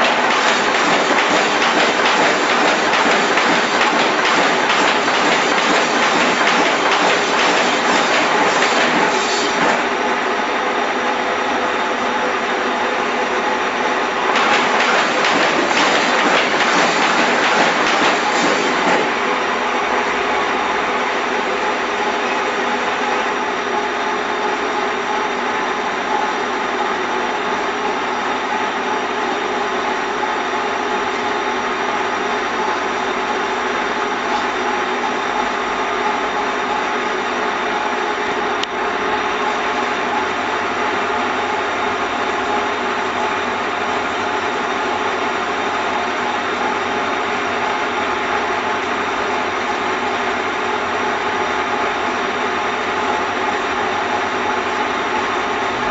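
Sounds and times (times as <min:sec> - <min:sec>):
paper folding machine whirring: 0:00.0 - 0:10.2, 0:14.2 - 0:20.6.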